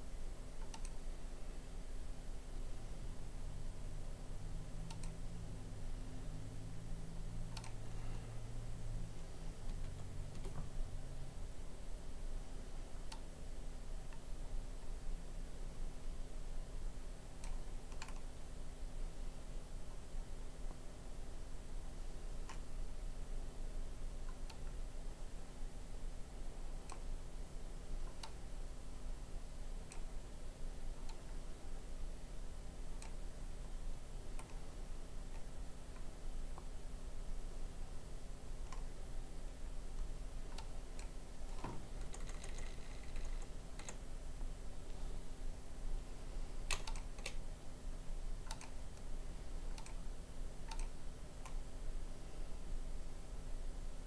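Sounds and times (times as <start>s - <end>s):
faint steady hum: 0.0s - 54.0s
computer mouse button clicking: 0.6s - 1.0s, 4.9s - 5.2s, 7.6s - 7.8s, 17.4s - 18.3s, 46.7s - 47.4s, 48.5s - 48.8s, 49.7s - 50.0s, 50.7s - 51.6s
computer mouse clicks: 0.6s - 1.0s, 4.8s - 5.2s, 7.5s - 7.8s, 9.7s - 10.6s, 13.1s - 13.3s, 17.4s - 18.3s, 24.3s - 24.8s, 26.8s - 27.1s, 28.0s - 28.4s, 29.8s - 30.1s, 31.0s - 31.3s, 33.0s - 33.2s, 34.4s - 34.6s, 38.6s - 38.9s, 40.0s - 44.0s, 46.6s - 47.4s, 48.4s - 49.1s, 49.7s - 50.0s, 50.6s - 51.6s.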